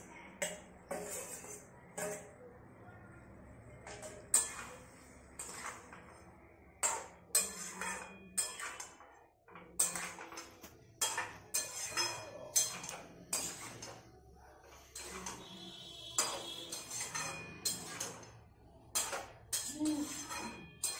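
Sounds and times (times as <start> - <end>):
metal spatula scraping wok: 0.0 - 2.4, 3.8 - 20.9.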